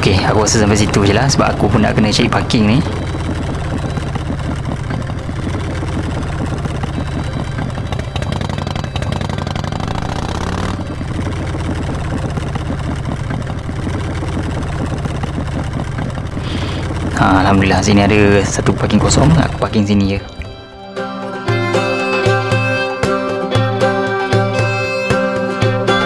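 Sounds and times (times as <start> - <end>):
motorcycle engine at low revs: 0.0 - 20.6.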